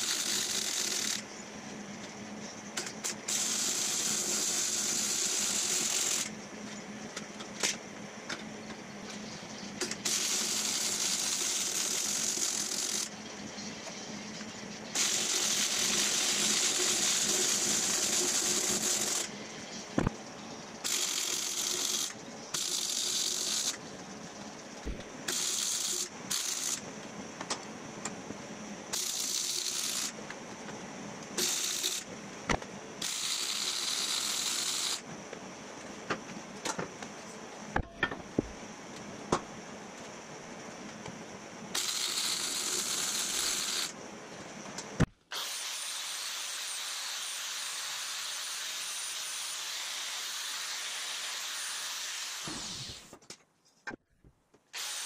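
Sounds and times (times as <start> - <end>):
arc welding crackling: 9.9 - 13.2, 14.9 - 20.1, 20.8 - 23.8, 24.8 - 26.9, 28.9 - 30.3, 31.4 - 32.1, 33.0 - 35.0, 41.8 - 44.0
angle grinder hissing: 14.8 - 20.1, 25.3 - 26.8, 28.9 - 30.2, 31.4 - 32.1, 33.0 - 35.0, 41.8 - 44.0, 45.3 - 53.2, 54.8 - 55.0.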